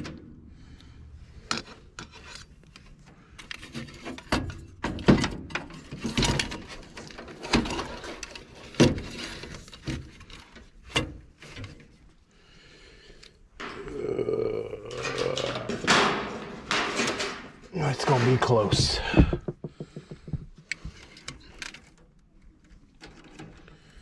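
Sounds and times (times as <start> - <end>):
hands knocking and rubbing box: 18.6 - 21.0.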